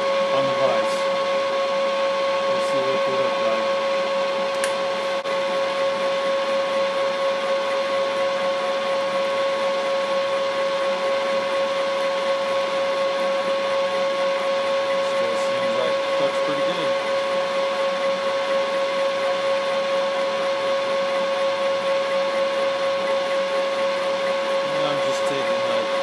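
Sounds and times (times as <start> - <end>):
milling machine whining: 0.0 - 26.0.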